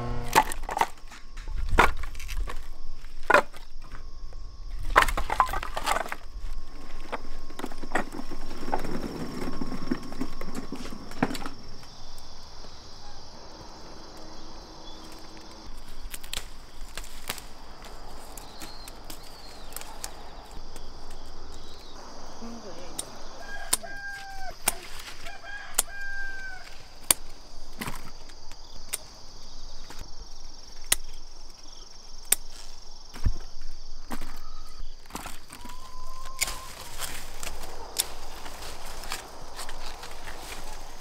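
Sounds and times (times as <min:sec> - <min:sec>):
rustling and clatter: 0:04.7 - 0:12.4.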